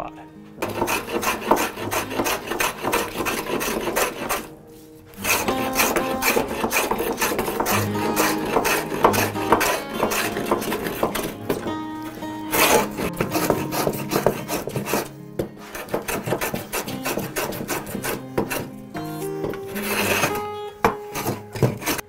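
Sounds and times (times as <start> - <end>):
background music: 0.0 - 22.0
hand plane rasping on wood: 0.6 - 4.5, 5.1 - 22.0.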